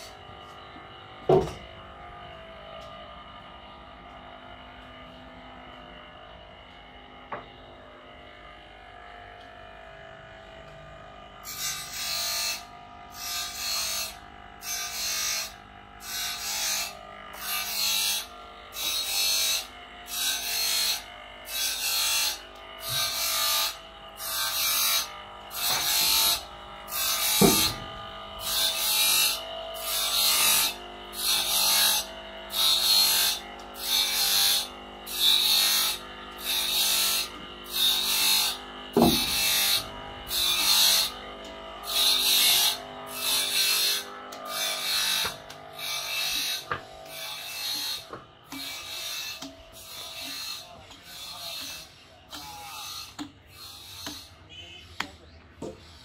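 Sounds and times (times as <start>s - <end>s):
steady machine hum: 0.0s - 53.3s
hand tool rasping strokes: 11.4s - 54.4s.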